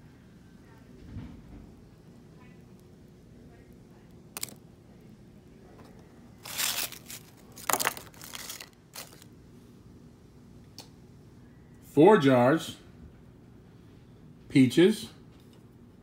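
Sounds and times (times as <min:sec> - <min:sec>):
dry fruit slices crunching: 0:04.3 - 0:04.6, 0:06.4 - 0:09.3.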